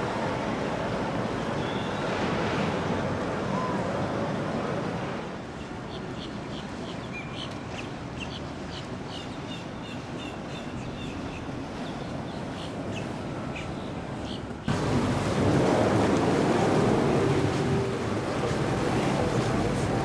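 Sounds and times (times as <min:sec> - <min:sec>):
rushing water: 0:00.0 - 0:20.0
birds chirping: 0:05.5 - 0:15.3.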